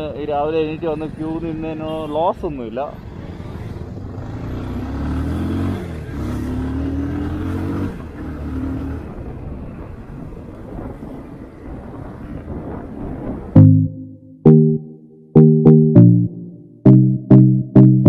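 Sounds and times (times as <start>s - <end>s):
motorcycle engine accelerating: 3.0s - 9.5s.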